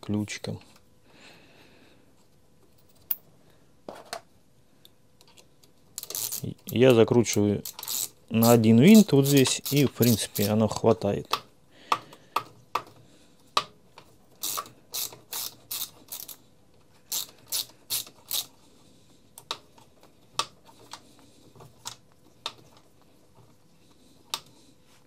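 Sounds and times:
hand ratchet clicking: 6.0s - 10.6s, 14.4s - 16.4s, 17.1s - 18.5s.

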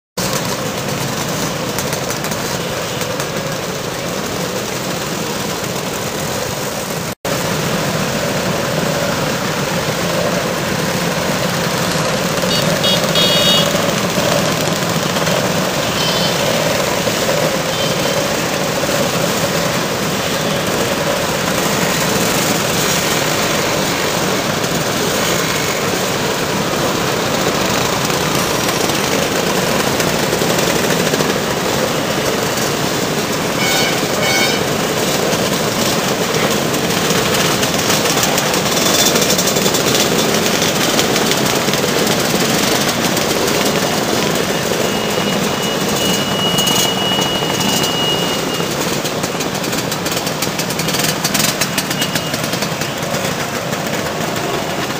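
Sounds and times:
scooters riding past in a pack: 0.2s - 54.9s.

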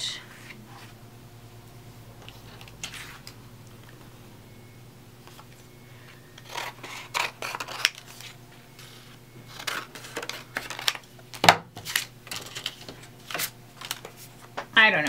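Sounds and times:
scissors snipping paper: 6.4s - 8.0s.

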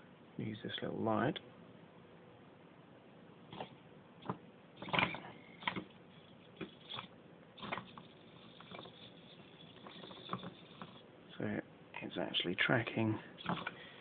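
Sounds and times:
servos buzzing: 3.5s - 11.1s.

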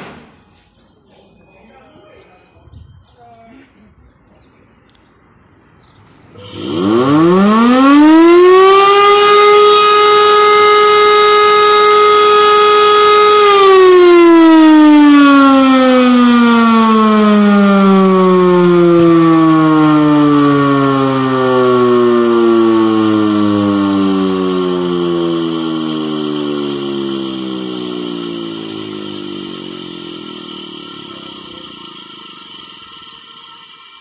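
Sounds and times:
motor siren wailing: 6.4s - 33.4s.

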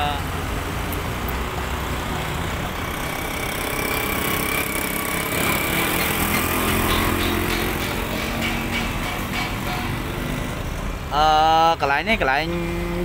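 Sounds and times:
passing cars and motorbikes: 0.0s - 13.0s
motorcycle engine passing close: 2.1s - 10.8s.

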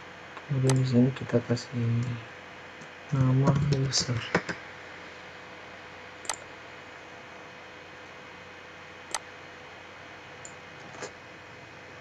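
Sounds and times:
steady low hiss: 0.0s - 12.0s
computer mouse clicking: 6.2s - 6.5s.

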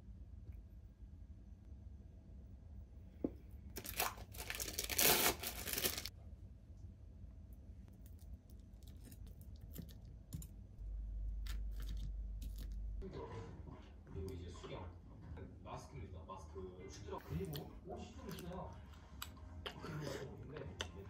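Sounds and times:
plastic wrapper crinkling and tearing: 3.8s - 6.1s.

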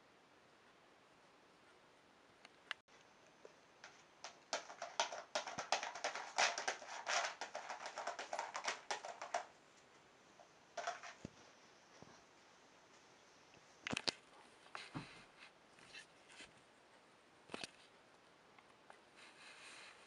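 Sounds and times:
cat rustling and tapping: 3.8s - 12.3s.

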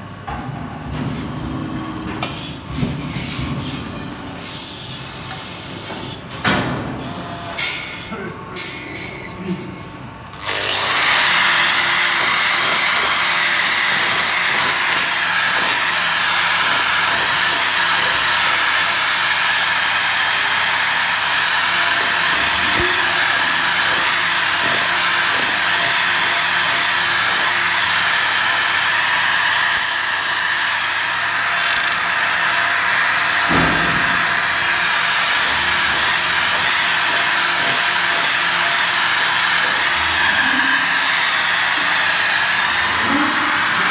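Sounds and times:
angle grinder whining: 10.3s - 43.9s.

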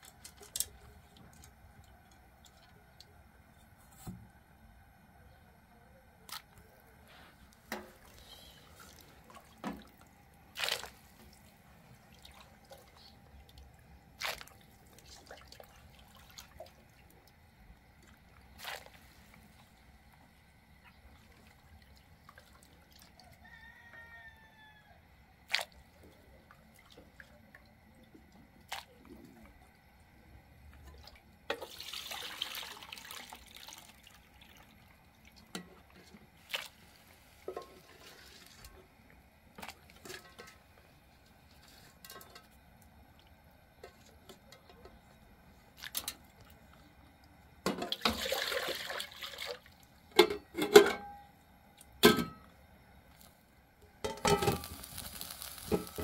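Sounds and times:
liquid splashing into a pot: 8.8s - 11.4s, 14.2s - 17.2s, 30.8s - 38.7s, 47.6s - 51.0s, 54.0s - 56.0s
pots and lids clinking: 37.5s - 38.1s, 50.1s - 51.2s, 52.0s - 52.4s, 54.0s - 54.9s, 55.6s - 56.0s.

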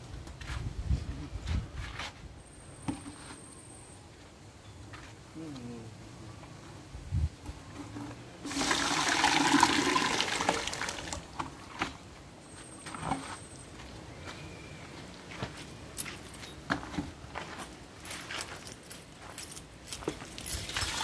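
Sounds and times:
water pouring into bucket: 8.4s - 11.3s, 20.8s - 21.0s.

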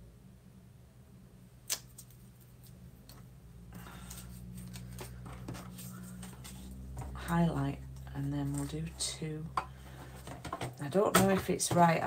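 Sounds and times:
steady low hum: 0.0s - 12.0s
paper rustling: 3.9s - 7.2s.

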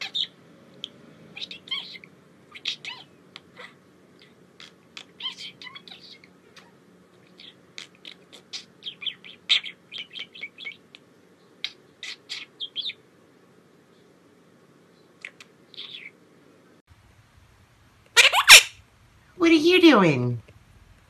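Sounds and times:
budgerigar chirping and chattering: 0.0s - 0.4s, 1.3s - 6.7s, 7.3s - 11.0s, 11.6s - 13.0s, 15.2s - 16.2s, 18.2s - 18.7s.

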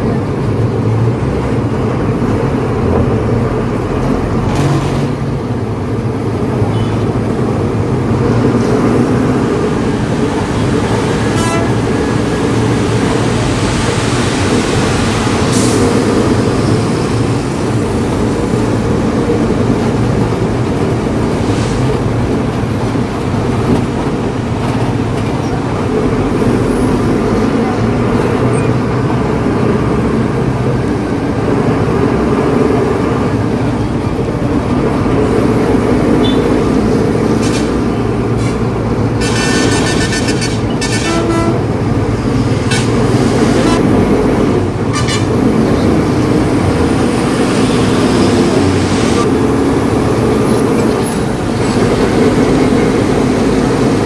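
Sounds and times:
road noise: 0.0s - 54.0s
truck diesel engine drone: 0.0s - 54.0s
truck horn: 11.2s - 12.1s, 36.2s - 36.6s, 39.2s - 41.8s, 42.6s - 44.1s, 44.9s - 45.4s.

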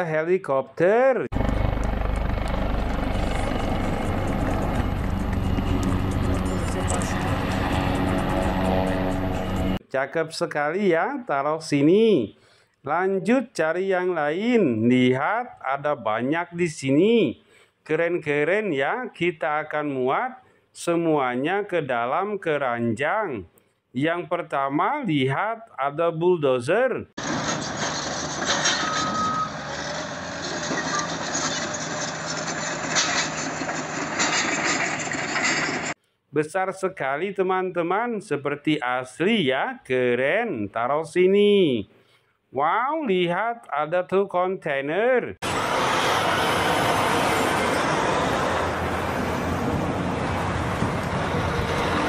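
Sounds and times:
bulldozer diesel engine: 1.3s - 9.8s, 27.2s - 36.0s, 45.4s - 52.0s
tracks and earth-moving noise: 1.3s - 9.8s, 27.2s - 36.0s, 45.4s - 52.0s
trucks driving by: 1.3s - 9.8s, 27.2s - 36.0s, 45.4s - 52.0s
reversing alarm beeps: 28.7s - 29.7s.

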